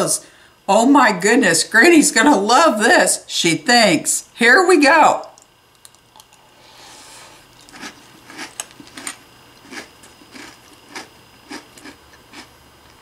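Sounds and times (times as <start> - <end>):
crunchy cereal chewing: 5.7 - 6.6, 7.3 - 12.6.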